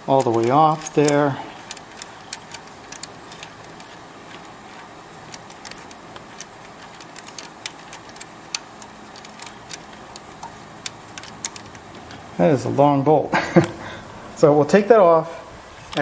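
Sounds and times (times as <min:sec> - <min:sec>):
metal bolt clicking: 0:00.0 - 0:12.3.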